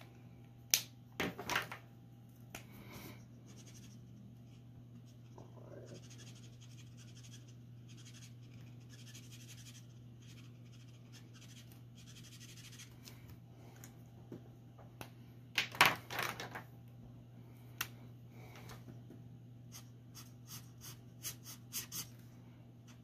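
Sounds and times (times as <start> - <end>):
marker rubbing across paper: 3.4 - 12.9, 19.7 - 22.1.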